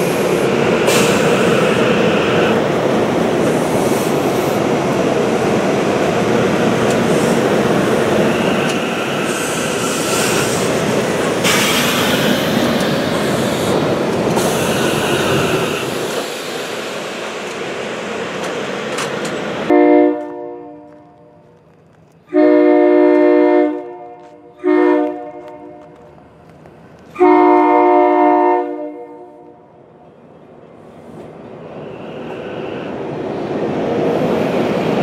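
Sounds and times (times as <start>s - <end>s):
train wheels rumbling on rail: 0.0s - 35.0s
train horn blast: 19.7s - 21.4s, 22.3s - 26.0s, 27.1s - 29.7s.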